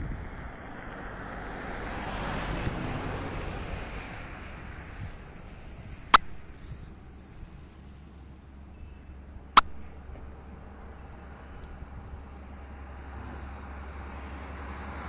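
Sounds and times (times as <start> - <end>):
wind rushing over microphone: 0.0 - 7.7
sharp click: 6.2 - 6.5, 9.6 - 10.0.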